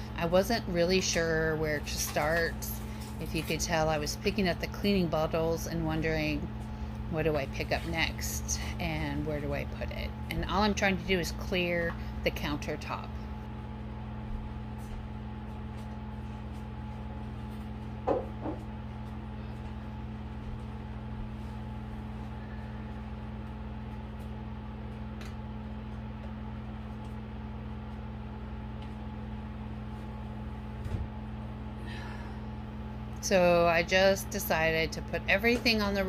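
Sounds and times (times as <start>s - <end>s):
steady low hum: 0.0s - 36.0s
bottles knocking on counter: 18.0s - 18.6s.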